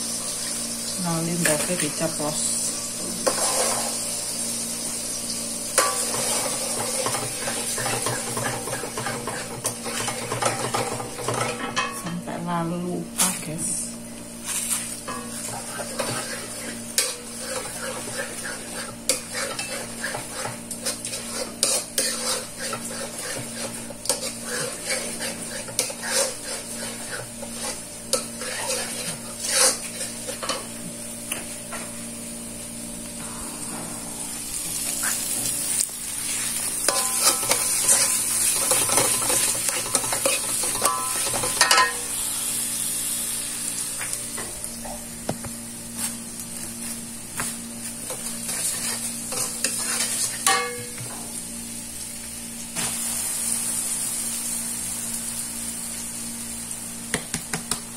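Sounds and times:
food sizzling: 0.0s - 57.9s
spatula scraping a wok: 3.0s - 4.1s, 5.8s - 11.9s, 14.4s - 30.7s, 36.3s - 42.0s, 47.9s - 50.8s.

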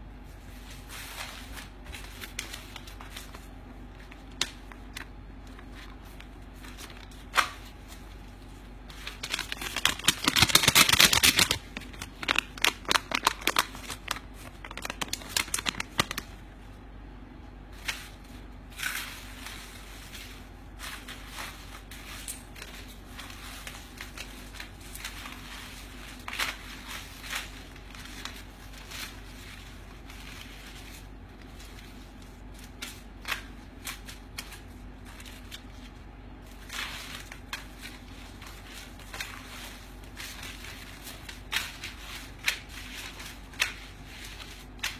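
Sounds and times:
paper notes rustling: 0.2s - 16.4s, 17.8s - 44.9s.

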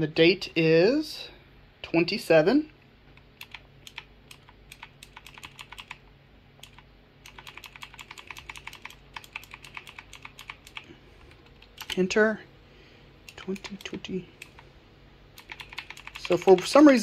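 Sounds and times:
computer keyboard keystrokes: 3.2s - 6.0s, 6.6s - 12.0s, 13.3s - 14.6s, 15.4s - 16.8s.

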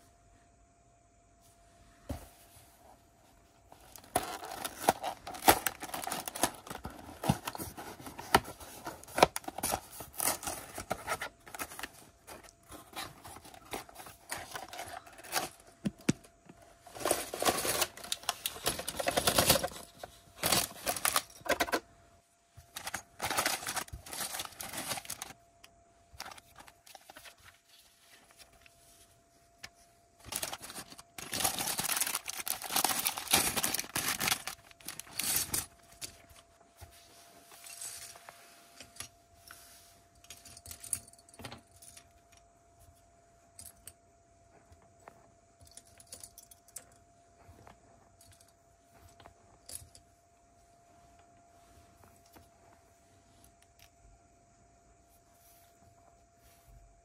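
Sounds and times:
packaging rustling: 3.8s - 21.8s, 22.7s - 25.4s, 30.2s - 36.3s
plastic pieces rattling and clicking: 16.9s - 21.8s, 30.2s - 36.2s.

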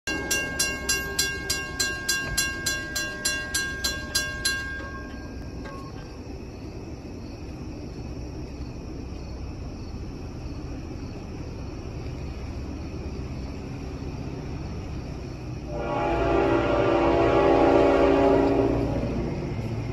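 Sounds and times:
railroad crossing bell ringing: 0.1s - 6.2s.

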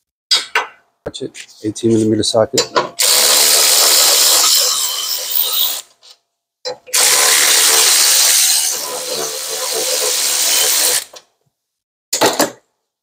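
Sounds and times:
electric ratchet spinning bolts: 3.0s - 5.9s, 6.9s - 11.2s.

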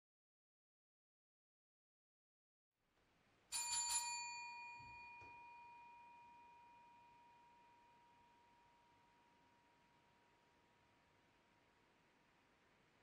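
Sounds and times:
service bell ringing: 3.5s - 9.4s.

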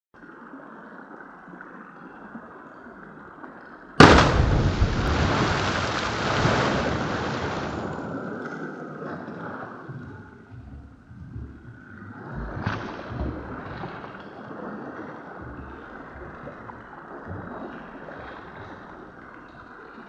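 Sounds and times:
loud explosion: 4.0s - 8.2s.

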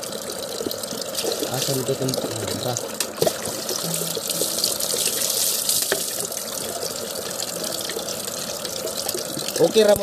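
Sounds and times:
water running and splashing: 0.0s - 10.0s.

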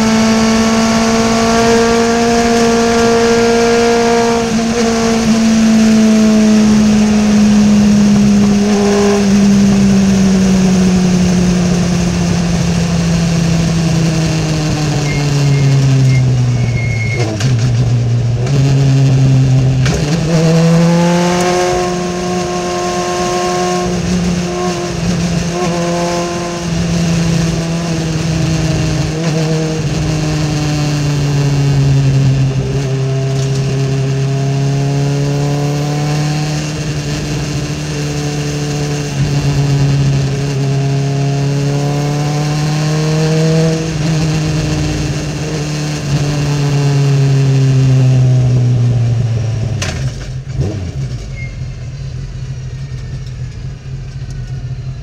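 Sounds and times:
race car engine running: 0.0s - 35.8s.

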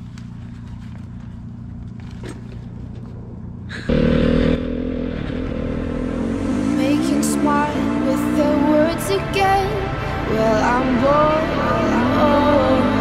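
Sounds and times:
dirt bike engine: 0.0s - 13.0s
low engine hum: 0.0s - 13.0s.

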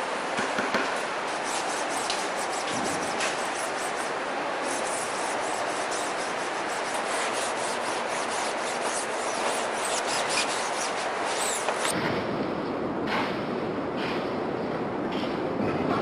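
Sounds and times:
paste scraping across mesh: 1.3s - 11.9s
low rumbling noise: 11.9s - 16.0s.

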